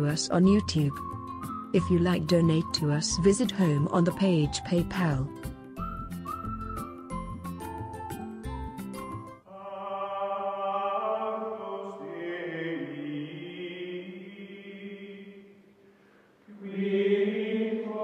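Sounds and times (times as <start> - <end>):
slow chant-like voices: 9.5 - 18.0.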